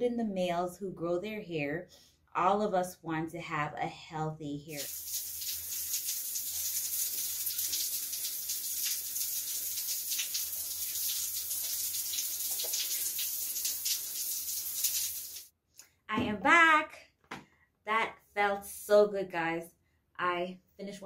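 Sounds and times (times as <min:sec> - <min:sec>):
shower running: 0:04.7 - 0:15.5.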